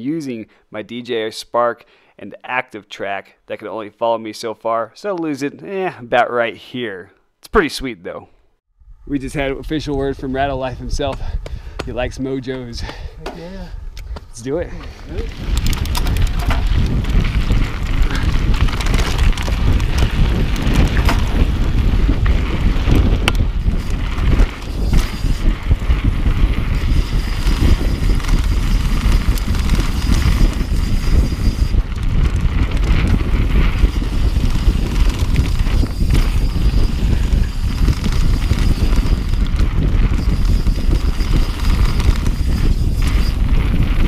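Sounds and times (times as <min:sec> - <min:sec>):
wind rumble on microphone: 0:08.8 - 0:44.0
bike tyres crunching on rocks: 0:14.0 - 0:44.0
bike rattling over bumps: 0:14.1 - 0:44.0.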